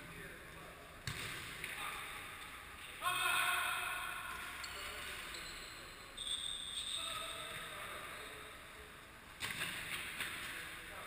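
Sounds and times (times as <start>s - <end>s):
sneakers squeaking on court floor: 4.6s - 8.5s.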